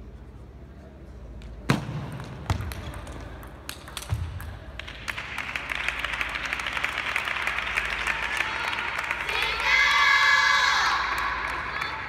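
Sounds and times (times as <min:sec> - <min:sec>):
spectators applauding: 0:04.7 - 0:10.4.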